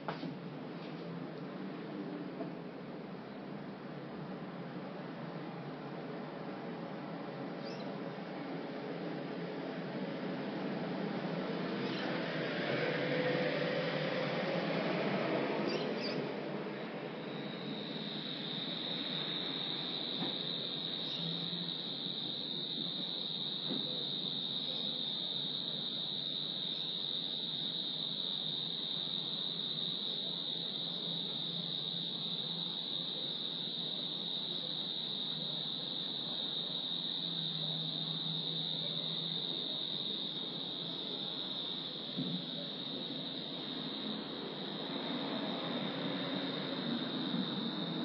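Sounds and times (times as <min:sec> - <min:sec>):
crickets trilling: 0:02.9 - 0:48.0.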